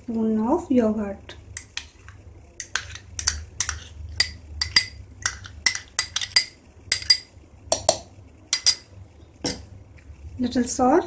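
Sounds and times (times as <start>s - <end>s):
metal spoon clinking on bowls: 2.6s - 8.9s.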